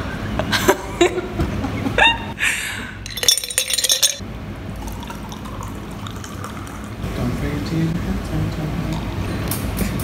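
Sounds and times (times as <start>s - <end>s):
ice cubes clinking into a glass jar: 3.1s - 4.2s
sparkling water pouring: 3.1s - 4.2s, 4.8s - 7.0s.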